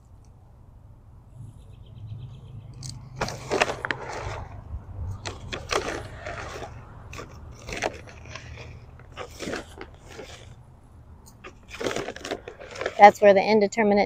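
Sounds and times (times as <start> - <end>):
footsteps on wood-chip mulch: 3.2 - 4.5
plastic bag crunching and rustling: 3.2 - 4.6, 5.2 - 10.6, 11.4 - 13.2.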